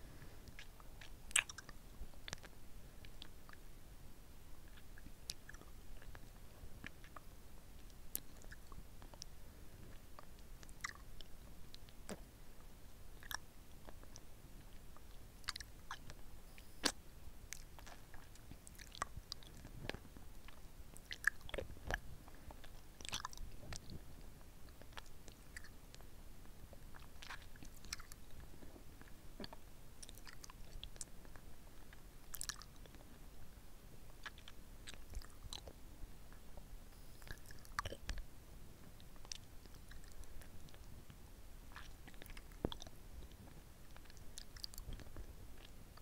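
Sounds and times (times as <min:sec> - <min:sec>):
lollipop licking and sucking: 0:00.4 - 0:03.6, 0:41.7 - 0:42.9
wet mouth clicks and smacks: 0:00.5 - 0:03.6, 0:10.2 - 0:12.2, 0:15.0 - 0:22.0, 0:26.9 - 0:28.2, 0:29.4 - 0:31.1, 0:32.3 - 0:33.0, 0:34.2 - 0:35.8, 0:41.7 - 0:42.9, 0:43.9 - 0:46.0.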